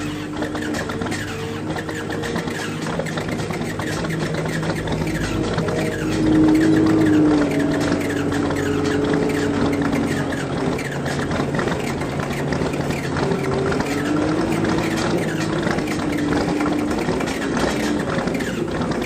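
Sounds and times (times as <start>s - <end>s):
diesel tractor engine clattering: 0.0s - 19.0s.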